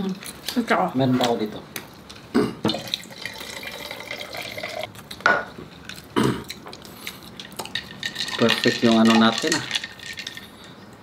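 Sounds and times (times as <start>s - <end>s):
drink pouring into glass: 2.7s - 4.9s, 7.5s - 10.4s.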